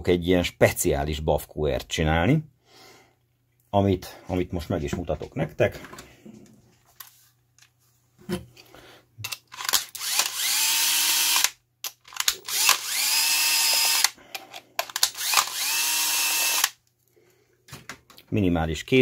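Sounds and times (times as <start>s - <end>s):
cordless drill motor whine: 9.9s - 11.5s, 12.3s - 14.2s, 15.0s - 16.8s.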